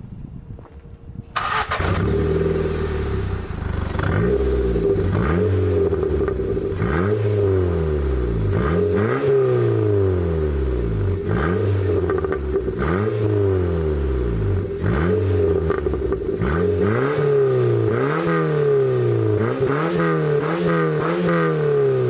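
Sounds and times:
car engine revving: 1.4s - 22.0s.

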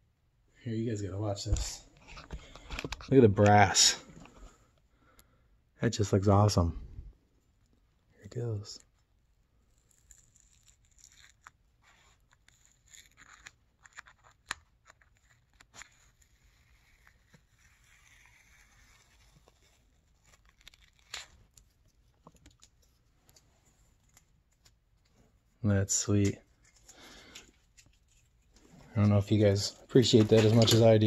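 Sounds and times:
tape peeling off metal: 9.7s - 22.8s.

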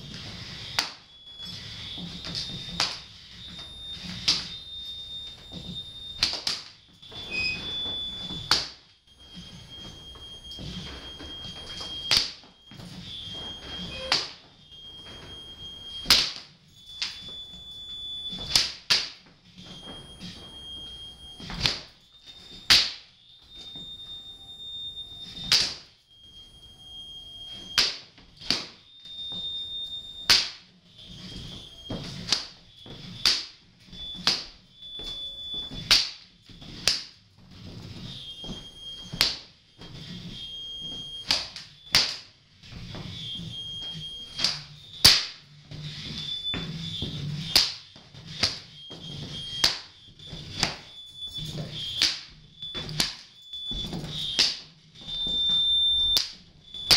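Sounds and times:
belts slapping floor and walls: 0.0s - 26.4s, 27.4s - 56.9s
high steady tone: 0.1s - 6.4s, 9.1s - 18.5s.

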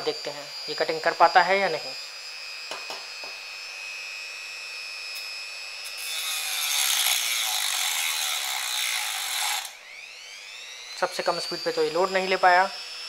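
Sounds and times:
rotary tool whining: 0.0s - 13.0s
disc grinding metal: 5.9s - 9.8s.

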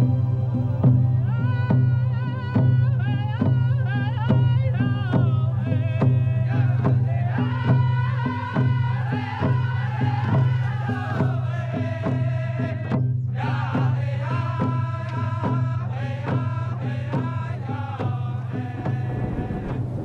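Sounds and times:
low drone: 0.0s - 2.8s, 18.4s - 20.0s
chant-like melody: 0.0s - 20.0s.

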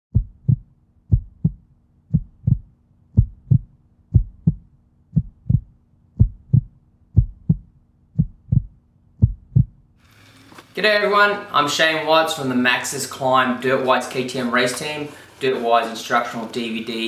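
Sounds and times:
heartbeat thumps: 0.1s - 9.8s.

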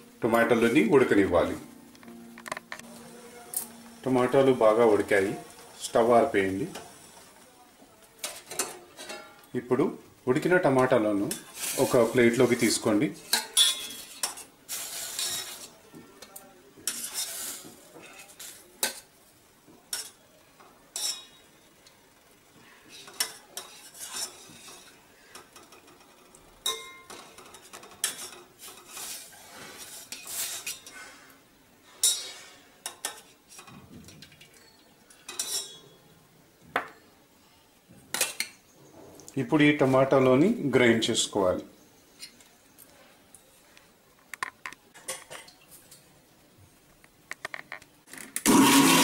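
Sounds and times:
spoon scraping a steel pot: 13.2s - 15.8s, 16.8s - 19.0s, 22.9s - 25.0s, 28.0s - 31.0s.

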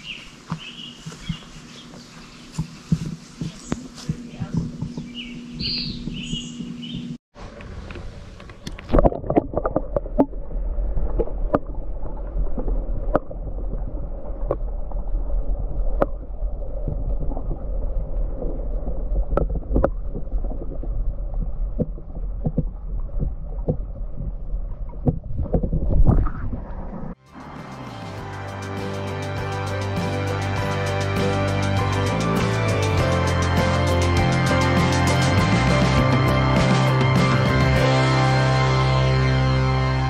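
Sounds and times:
sharp underwater clicks and knocks: 6.0s - 10.3s, 19.2s - 26.6s
muffled underwater rumble of water: 7.4s - 27.2s.

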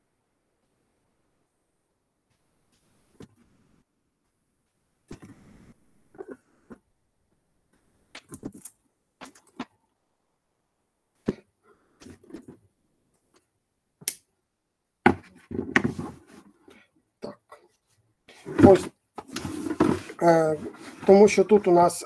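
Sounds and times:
tools handled on workbench: 18.4s - 21.2s.

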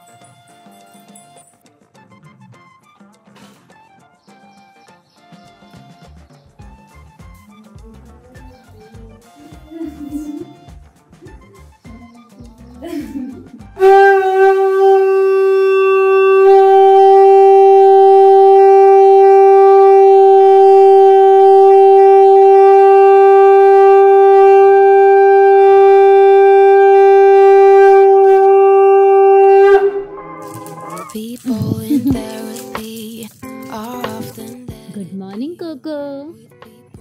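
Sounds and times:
conch shell blown: 13.8s - 32.7s.

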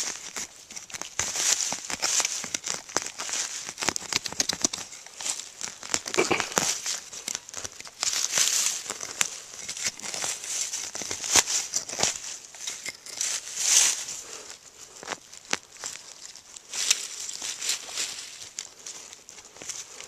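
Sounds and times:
dry leaves and soil rustling: 0.0s - 20.0s.

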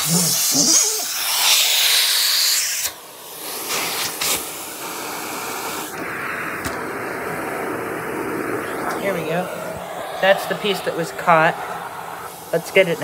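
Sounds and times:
vacuum hose hissing: 0.0s - 13.0s
low rush of suction: 3.0s - 13.0s.

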